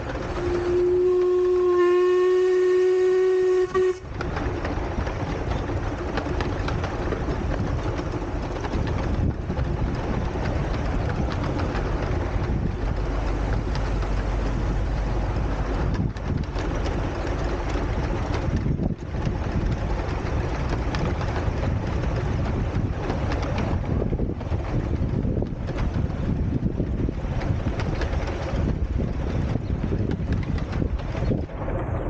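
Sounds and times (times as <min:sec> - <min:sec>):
train rumbling: 0:00.0 - 0:32.0
steam locomotive whistle: 0:00.2 - 0:04.2.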